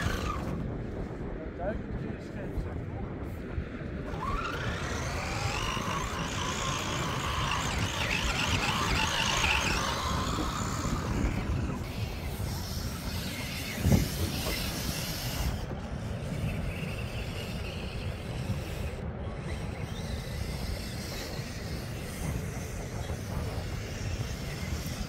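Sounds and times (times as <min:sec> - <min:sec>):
model car motor whining: 0:00.0 - 0:00.6, 0:04.0 - 0:25.0.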